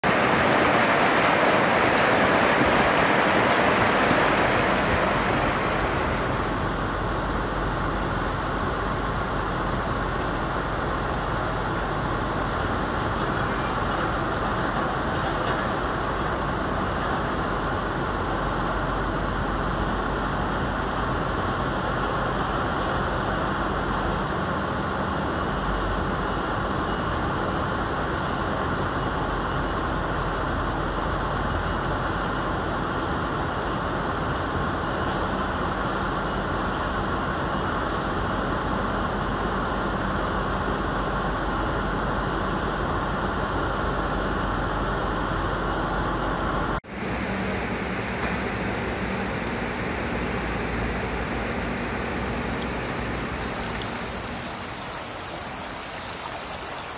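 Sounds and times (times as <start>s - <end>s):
stream rushing over rocks: 0.0s - 7.1s.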